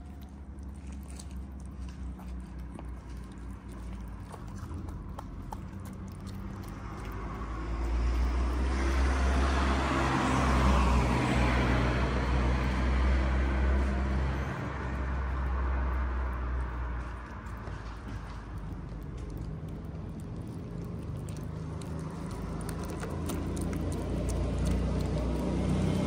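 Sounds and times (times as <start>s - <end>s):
cats eating clicks: 0.0s - 8.8s, 15.0s - 26.0s
vehicle passing by: 0.0s - 26.0s.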